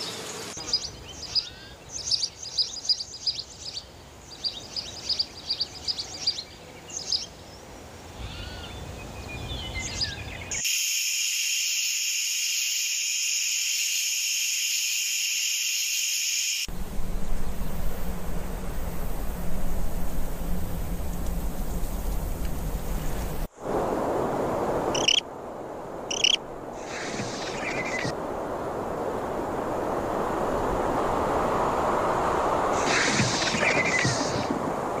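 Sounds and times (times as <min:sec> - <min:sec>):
songbirds chirping: 0:00.0 - 0:10.6, 0:20.2 - 0:23.5, 0:26.1 - 0:28.1
high insect buzz: 0:10.6 - 0:22.4, 0:26.1 - 0:28.1
rushing noise: 0:15.2 - 0:35.0.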